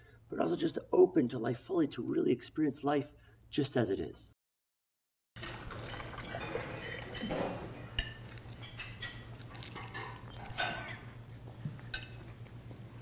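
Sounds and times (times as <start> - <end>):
cutlery and china cups clinking: 5.4 - 11.0.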